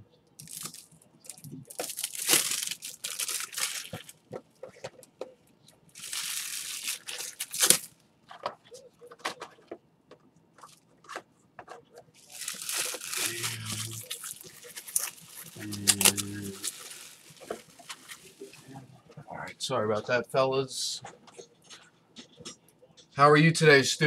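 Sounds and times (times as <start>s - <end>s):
plastic wrapping tearing and crinkling: 0.4s - 4.3s, 6.0s - 7.9s, 12.2s - 18.8s.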